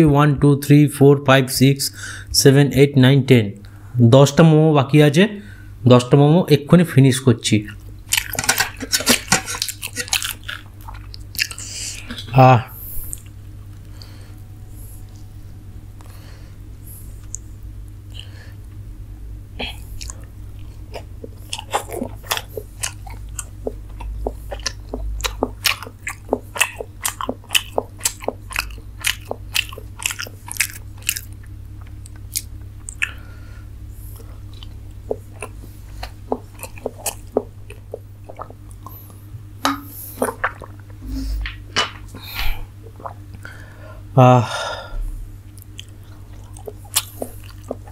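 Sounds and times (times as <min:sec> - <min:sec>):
steady low hum: 0:00.0 - 0:47.9
chewing and biting food: 0:07.7 - 0:12.1, 0:19.9 - 0:33.2, 0:34.0 - 0:39.2, 0:39.9 - 0:42.2, 0:45.5 - 0:47.9
wet mouth clicks: 0:20.0 - 0:20.2, 0:20.9 - 0:33.2, 0:34.2 - 0:42.1.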